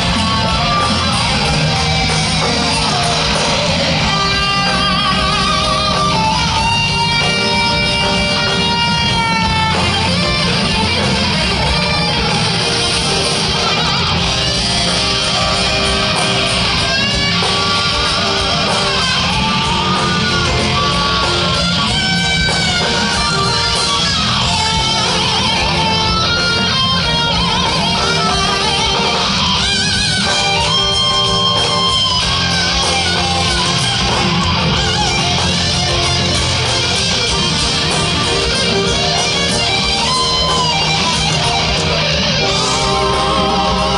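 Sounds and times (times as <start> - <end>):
bass guitar: 0.0 - 43.9
drums: 0.0 - 43.9
electric guitar lead with vibrato: 0.0 - 43.9.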